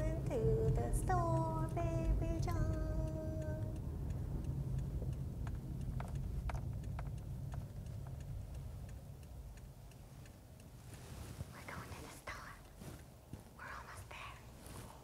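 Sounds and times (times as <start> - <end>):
faint ticks: 0.0 - 14.8
low steady rumble: 0.0 - 15.0.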